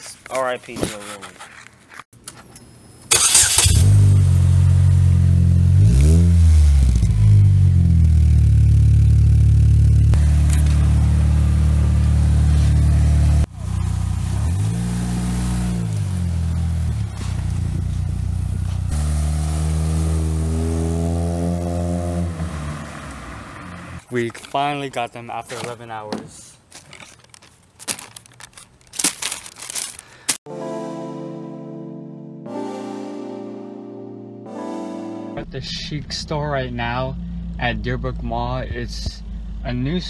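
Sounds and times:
car engine starting and revving: 3.1 - 24.0.

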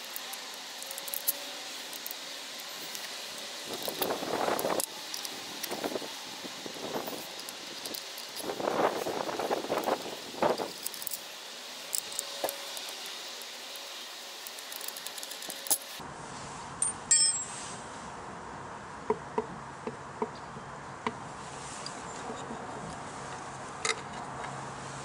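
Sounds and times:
metal on metal clink: 16.8 - 17.5.

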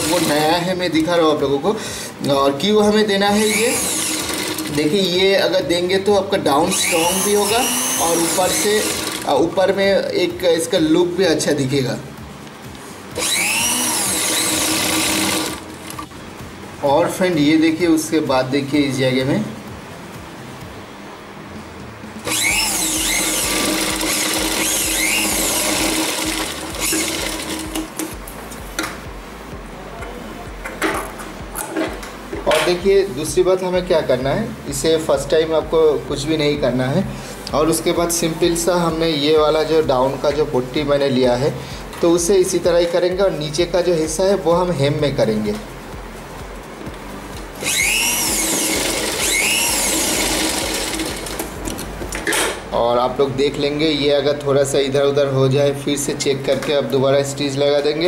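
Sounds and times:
sewing machine stitching: 3.5 - 4.9, 6.8 - 9.4, 13.2 - 15.6, 22.3 - 27.9, 47.6 - 51.5.

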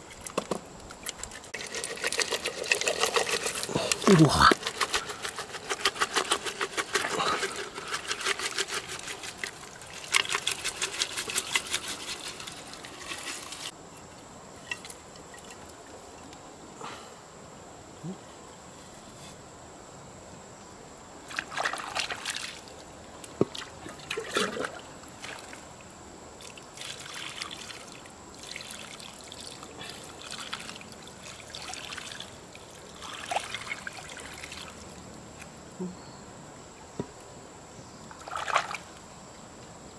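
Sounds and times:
water trickling and pouring: 26.8 - 34.8.

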